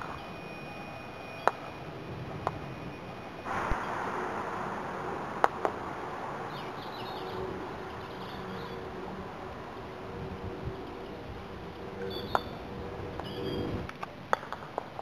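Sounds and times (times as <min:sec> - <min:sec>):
steady hiss: 0:00.0 - 0:15.0
faint bird chirps: 0:06.4 - 0:09.0, 0:12.0 - 0:12.6, 0:13.2 - 0:13.7.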